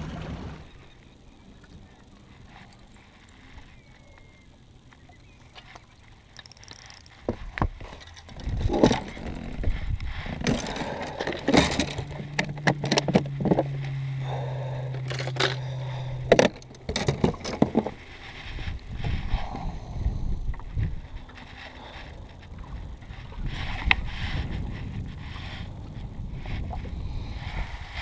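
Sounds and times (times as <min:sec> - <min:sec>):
gear knocking and rattling: 0:06.4 - 0:13.7.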